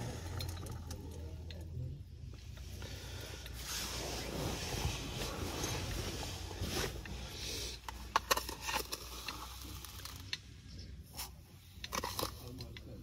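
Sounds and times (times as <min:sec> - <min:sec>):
fabric rustling: 0:03.6 - 0:07.4.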